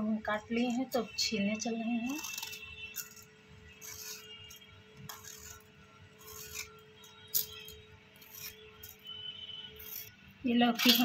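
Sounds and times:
peeler scraping gourd skin: 1.6 - 9.1, 9.8 - 10.2.

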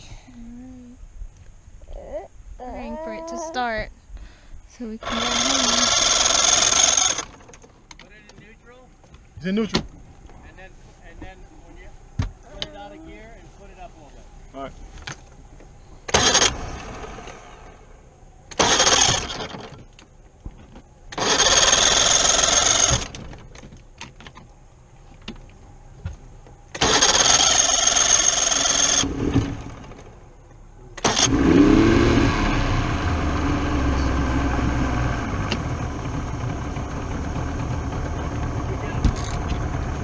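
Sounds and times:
outboard motor running: 4.8 - 9.3, 16.1 - 23.7, 26.4 - 40.0
electric starter cranking: 4.9 - 8.1, 16.1 - 17.8, 18.5 - 20.1, 21.1 - 23.5, 26.7 - 30.2, 31.0 - 40.0.

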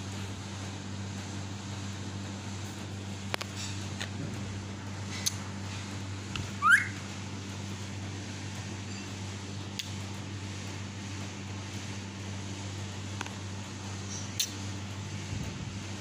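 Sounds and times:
fan humming: 0.0 - 16.0
parrot whistle: 6.6 - 7.0.

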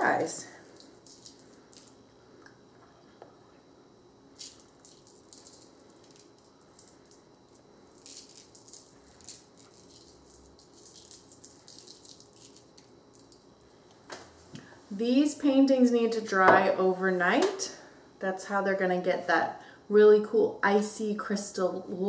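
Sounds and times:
salt crystals sprinkled on paper: 0.6 - 2.0, 4.4 - 13.4.

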